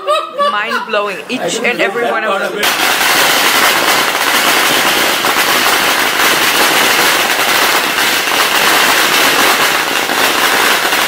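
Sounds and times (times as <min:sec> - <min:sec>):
firecrackers crackling: 0:02.6 - 0:11.0.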